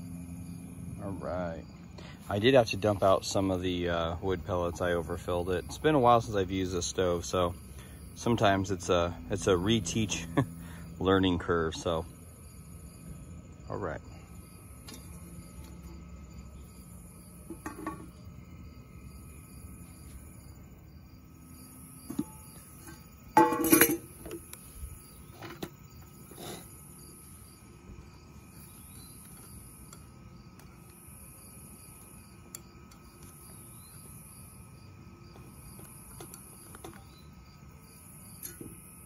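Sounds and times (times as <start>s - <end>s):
crickets and insects calling: 0.0s - 39.0s
stove fan humming: 0.0s - 39.0s
metal lid clatter: 17.5s - 18.1s, 22.1s - 24.4s.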